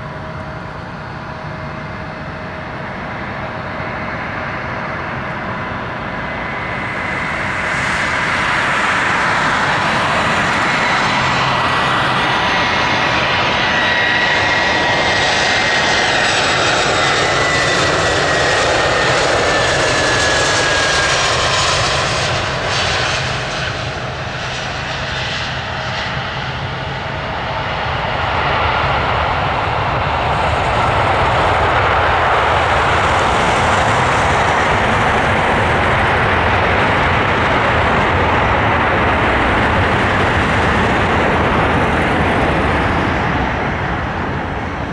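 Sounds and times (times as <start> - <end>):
jet engines landing: 0.0 - 44.9.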